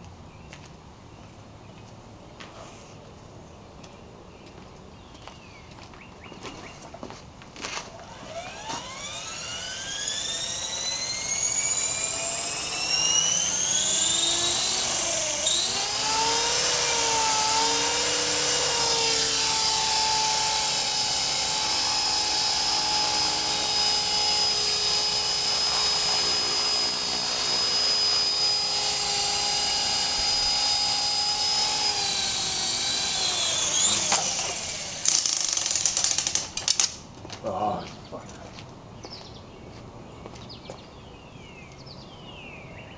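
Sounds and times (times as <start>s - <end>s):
rc helicopter motor whine: 7.8s - 37.0s.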